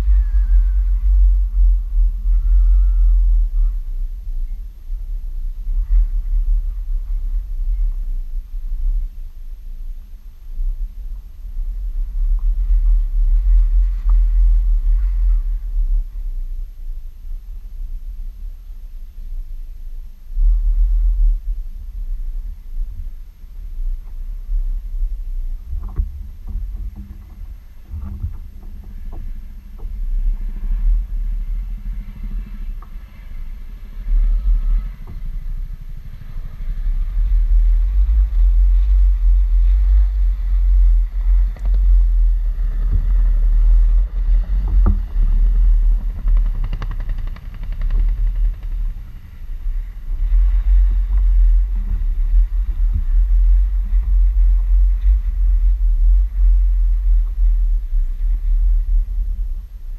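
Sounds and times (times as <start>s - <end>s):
wind buffeting microphone: 20.2s - 59.9s.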